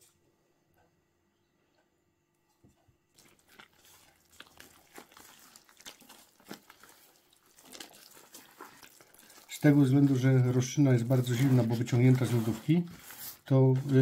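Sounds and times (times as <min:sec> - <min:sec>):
hand squelching bread dough: 0:03.0 - 0:14.0.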